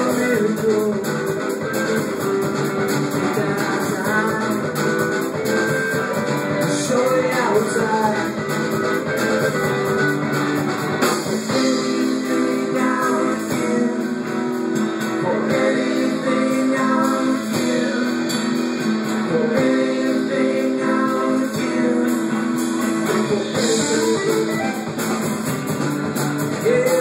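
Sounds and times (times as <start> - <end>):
drum kit hits: 0.0 - 15.9, 21.6 - 27.0
bass guitar: 0.0 - 27.0
electric guitars: 0.0 - 27.0.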